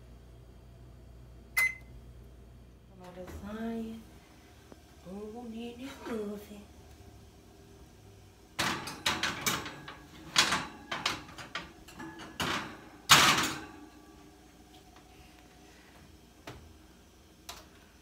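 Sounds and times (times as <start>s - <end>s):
oven rack clattering: 8.5s - 14.2s.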